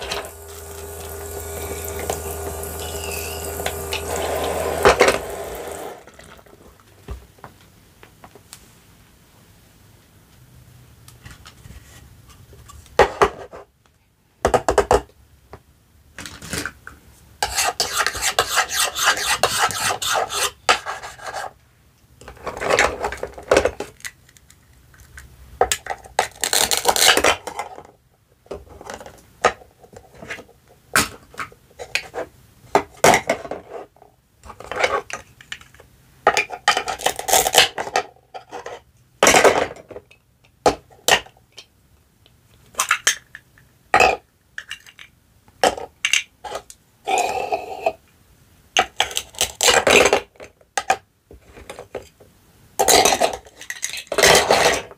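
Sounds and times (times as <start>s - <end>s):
plastic pieces clacking on board: 42.6s - 46.7s, 52.8s - 54.9s.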